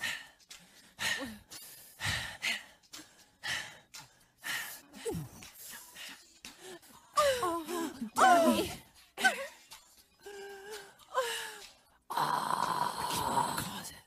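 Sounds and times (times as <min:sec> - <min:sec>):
person moaning: 0:07.2 - 0:08.8, 0:12.1 - 0:13.8.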